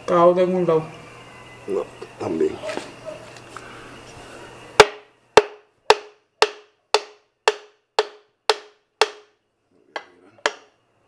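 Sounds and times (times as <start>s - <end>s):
hammer striking metal: 4.8s - 9.4s, 10.0s - 10.7s.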